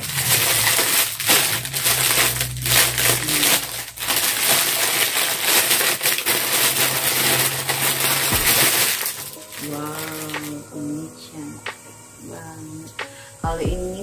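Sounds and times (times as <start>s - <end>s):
plastic packaging crinkling: 0.0s - 10.7s.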